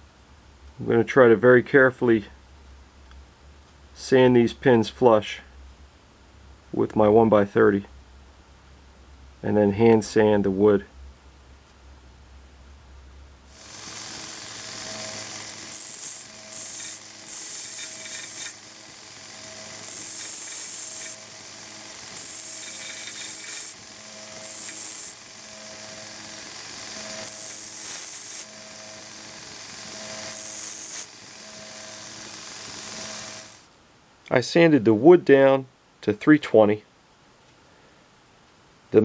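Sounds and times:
belt sander humming: 13.5s - 33.7s
hissing grind of sanding metal: 13.6s - 33.6s.

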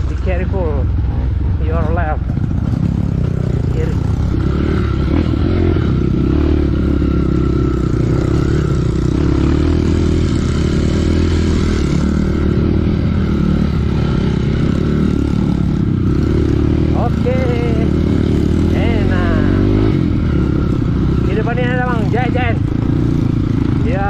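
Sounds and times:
motorcycle engine running: 0.0s - 24.0s.

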